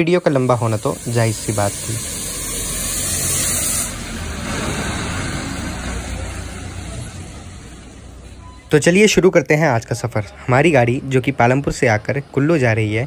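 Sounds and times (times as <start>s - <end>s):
tyres hissing on wet road: 0.0s - 8.3s
diesel bus engine: 0.2s - 13.0s.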